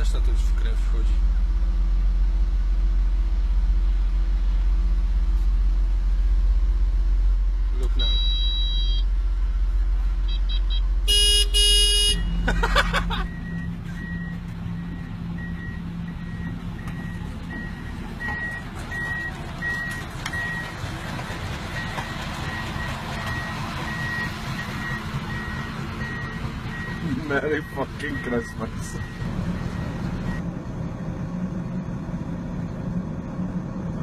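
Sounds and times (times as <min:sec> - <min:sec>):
construction machinery running: 0:00.0 - 0:34.0
skid steer engine rumbling: 0:00.0 - 0:34.0
warning alarm beeping: 0:07.9 - 0:09.1, 0:21.8 - 0:30.4.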